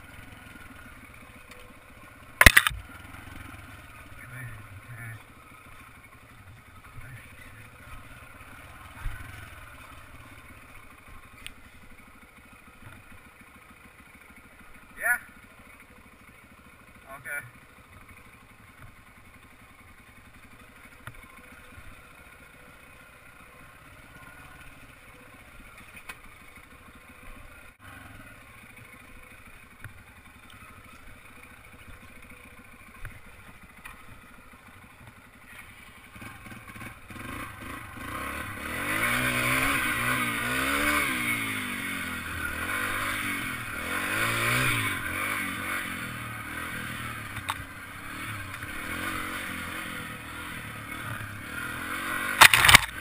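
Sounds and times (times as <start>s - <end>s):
dirt bike engine revving: 2.4s - 12.0s, 35.8s - 53.0s.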